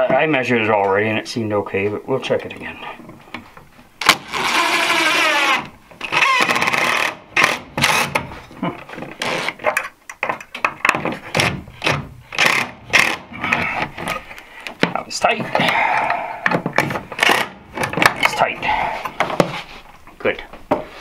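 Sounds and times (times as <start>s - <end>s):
cordless drill whining: 4.0s - 8.1s.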